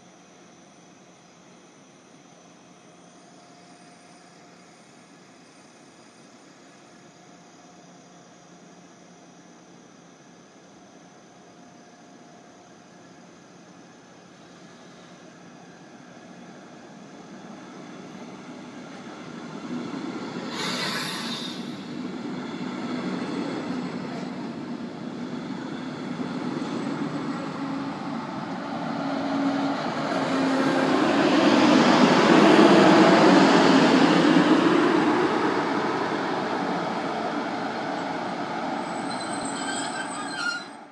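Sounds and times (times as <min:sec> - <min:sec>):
train rolling to a stop: 0:00.7 - 0:40.9
brief hiss: 0:20.3 - 0:22.1.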